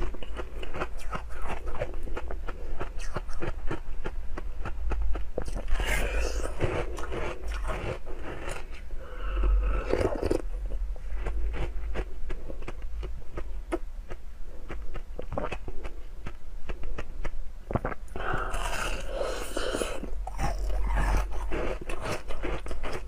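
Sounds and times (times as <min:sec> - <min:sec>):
teeth crunching ice: 0:11.2 - 0:23.0.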